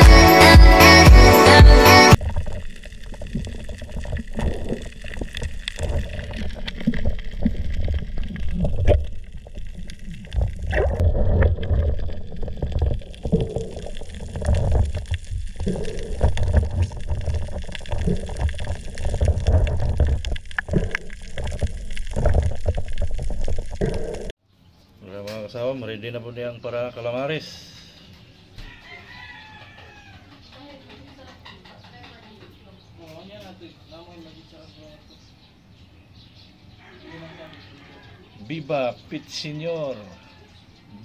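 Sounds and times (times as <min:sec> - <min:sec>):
muffled water sloshing underwater: 0:02.2 - 0:24.4
unsteady rumble: 0:02.2 - 0:24.4.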